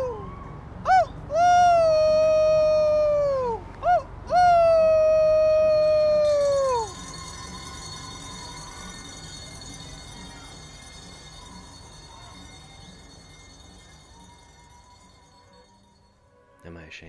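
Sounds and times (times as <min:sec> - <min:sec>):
man yipping: 0:00.0 - 0:07.0
man howling: 0:00.0 - 0:07.1.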